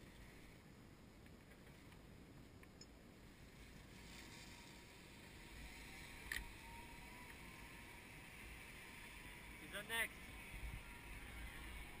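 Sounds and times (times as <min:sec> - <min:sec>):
faint thin whine: 0:00.0 - 0:12.0
zip line trolley hissing on cable: 0:03.3 - 0:12.0.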